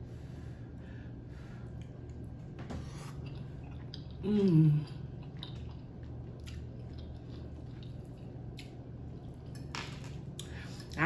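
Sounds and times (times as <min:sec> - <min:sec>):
steady low hum: 0:00.0 - 0:11.0
wet chewing mouth sounds: 0:04.8 - 0:08.8.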